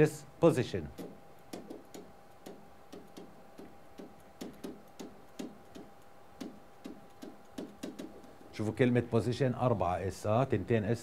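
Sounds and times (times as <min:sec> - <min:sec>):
faint steady hum: 0:00.0 - 0:11.0
pen tapping on whiteboard: 0:01.0 - 0:08.4.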